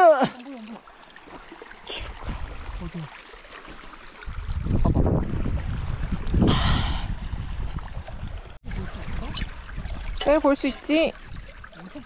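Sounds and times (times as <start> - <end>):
mountain stream running: 0.0 - 12.0
wind rumbling on microphone: 4.2 - 11.8.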